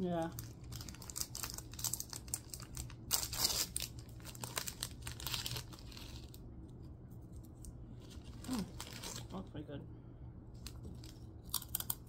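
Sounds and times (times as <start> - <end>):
snack packet crackling: 0.2 - 6.4, 7.6 - 9.3
packet ripping open: 0.3 - 6.4, 8.1 - 9.3.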